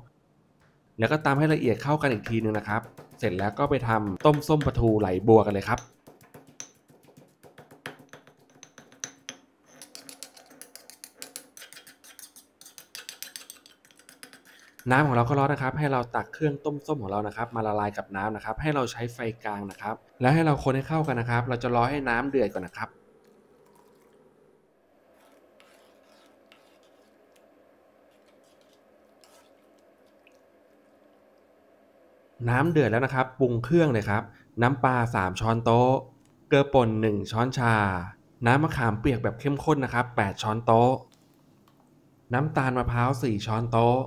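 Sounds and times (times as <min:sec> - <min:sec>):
faint steady background: 0:00.0 - 0:44.0
pestle pounding in stone mortar: 0:02.0 - 0:09.0
metal spoon scraping stone bowl: 0:09.6 - 0:15.0, 0:25.2 - 0:27.2, 0:28.1 - 0:29.6.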